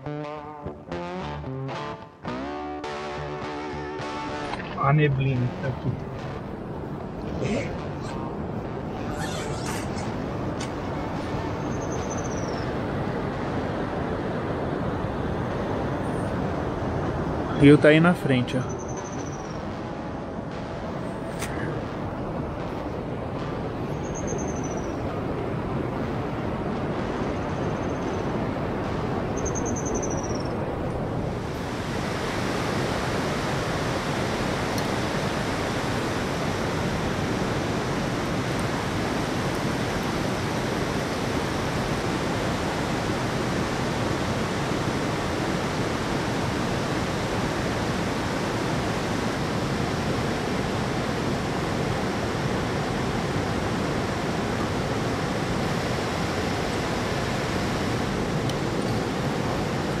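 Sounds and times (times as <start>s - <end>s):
river water rushing: 30.4s - 60.0s.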